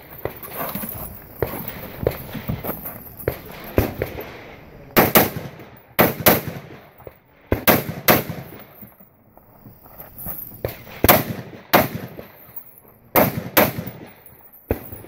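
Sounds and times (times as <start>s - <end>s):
gunshots: 3.3s - 6.9s, 7.5s - 8.6s, 10.7s - 12.4s, 13.1s - 15.0s.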